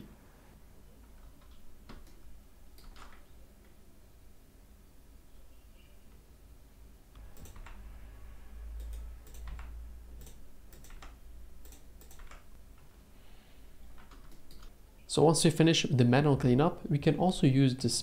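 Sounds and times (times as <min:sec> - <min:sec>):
keyboard and mouse clicking: 0:01.2 - 0:03.8, 0:07.2 - 0:07.8, 0:08.8 - 0:12.6, 0:13.9 - 0:14.8.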